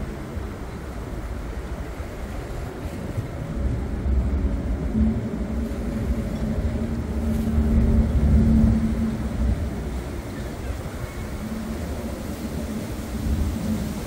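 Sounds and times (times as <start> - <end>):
ferry engine humming: 0.0 - 14.0
wind rumble on microphone: 0.0 - 14.0.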